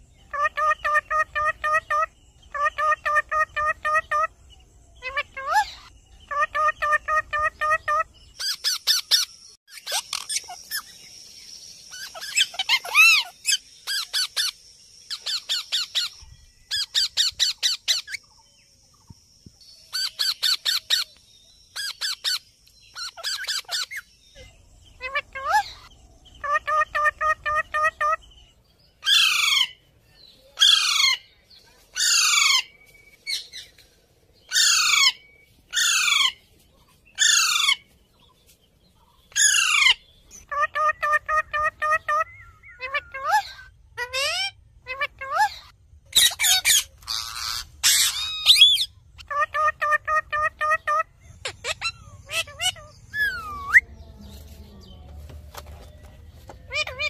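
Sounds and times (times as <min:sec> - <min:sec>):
parakeets squawking: 0:00.3 - 0:04.3, 0:05.0 - 0:11.0, 0:11.9 - 0:18.2, 0:21.8 - 0:24.1, 0:24.9 - 0:28.4, 0:29.0 - 0:29.8, 0:30.6 - 0:31.2, 0:32.0 - 0:32.7, 0:34.5 - 0:36.4, 0:37.2 - 0:37.8, 0:39.3 - 0:53.8, 0:56.5 - 0:57.0.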